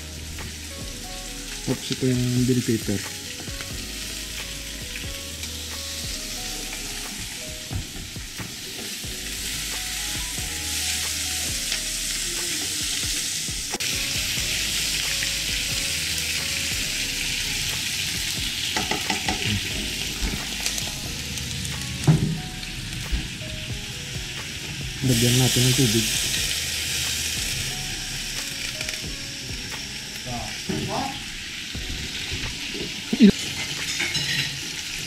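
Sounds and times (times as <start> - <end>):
vegetables sizzling in oil: 0.0 - 35.0
ladle clicking against pan: 18.8 - 19.5.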